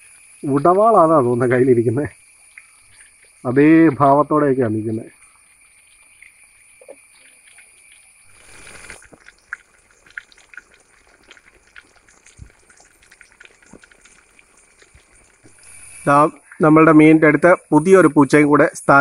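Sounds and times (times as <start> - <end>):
fish sizzling in oil: 0.0 - 3.8, 5.0 - 16.4
oil popping and crackling: 2.4 - 3.6, 5.0 - 16.3.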